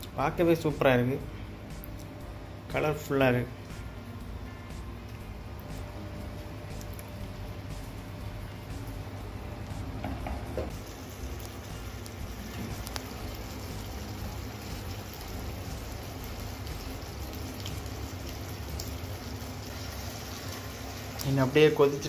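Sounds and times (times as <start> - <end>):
gravy bubbling in a frying pan: 10.7 - 21.3.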